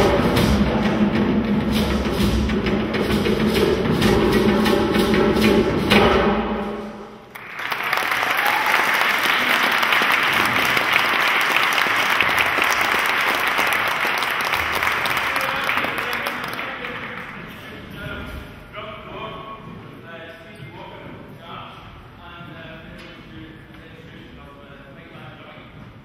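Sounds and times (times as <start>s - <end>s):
hand drum music: 0.0s - 6.6s
audience applause: 7.3s - 17.8s.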